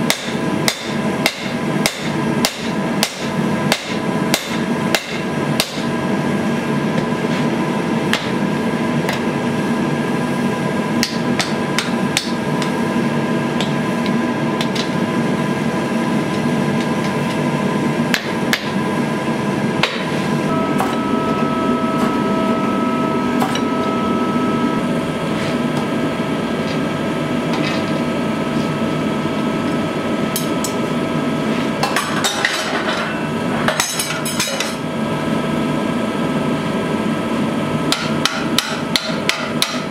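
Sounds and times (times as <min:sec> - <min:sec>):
hammer striking steel on anvil: 0:00.0 - 0:05.9, 0:19.8 - 0:24.8, 0:37.9 - 0:39.9
faint hum: 0:11.6 - 0:31.9.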